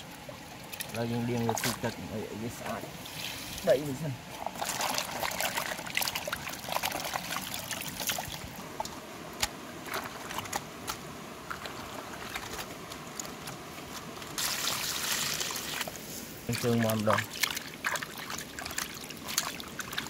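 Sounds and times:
water pouring into plastic basin: 4.4s - 8.4s, 14.4s - 15.9s, 16.5s - 20.0s.

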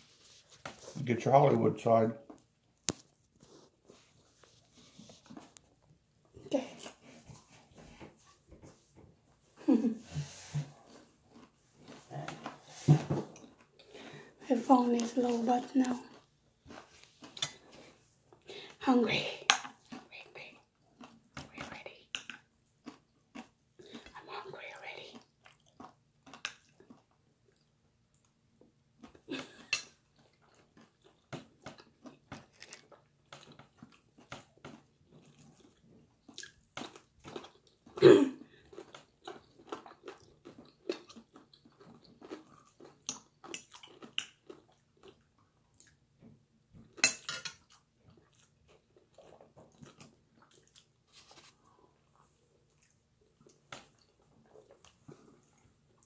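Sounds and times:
person chewing: 9.8s - 14.3s, 14.9s - 18.8s, 19.5s - 28.4s, 29.0s - 46.1s, 46.8s - 56.0s.

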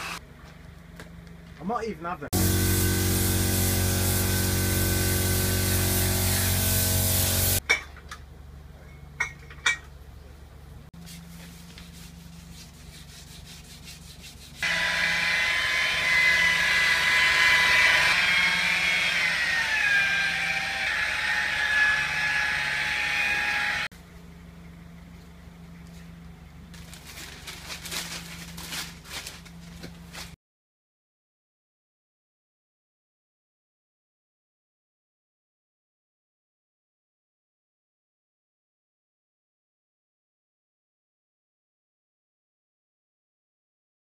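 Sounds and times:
paint spray gun hissing: 2.4s - 7.6s
polisher whining: 2.4s - 7.6s, 14.6s - 23.9s.

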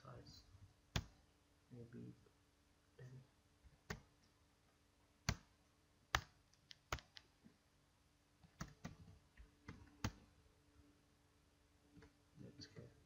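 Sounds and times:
faint steady hum: 0.0s - 13.0s
computer keyboard keys clicking: 6.1s - 7.3s, 8.6s - 9.0s.

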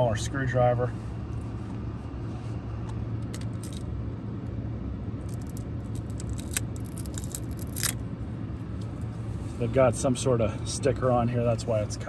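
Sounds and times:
screwdriver clicking and scraping: 5.3s - 8.0s.

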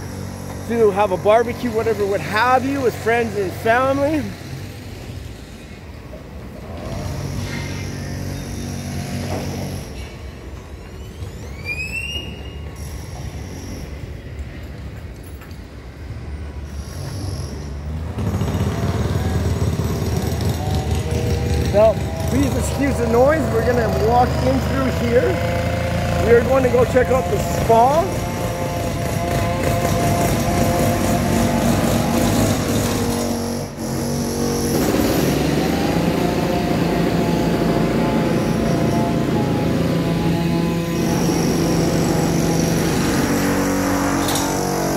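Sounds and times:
faint high whine: 7.0s - 14.8s
machinery engine rumble: 17.6s - 44.9s.

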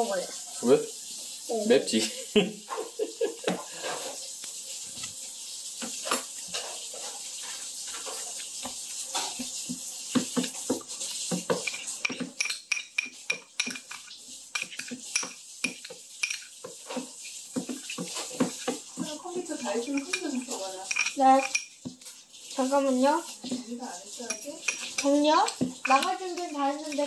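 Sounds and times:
cutlery clinking on dishes: 7.9s - 22.2s, 24.2s - 27.0s.

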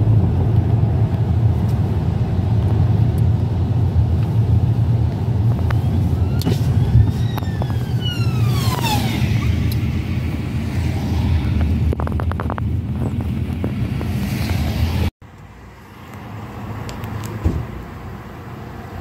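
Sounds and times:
road and engine rumble in car: 0.0s - 19.0s
ambulance siren wailing: 5.9s - 9.7s.

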